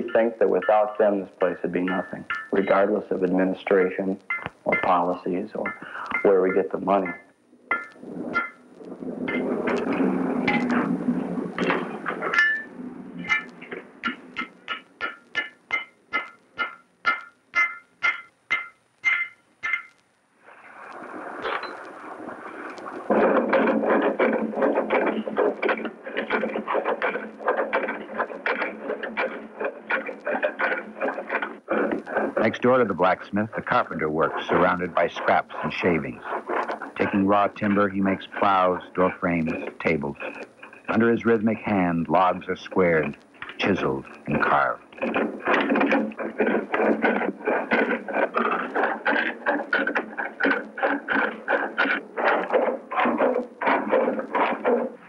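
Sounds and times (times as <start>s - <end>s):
chisel scraping wood on lathe: 21.6s - 55.0s
hand tool strokes on wood: 22.7s - 55.0s.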